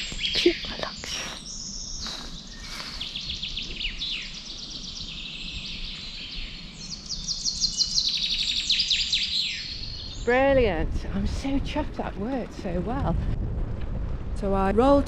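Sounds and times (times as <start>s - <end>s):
songbirds singing trills: 0.0s - 10.7s.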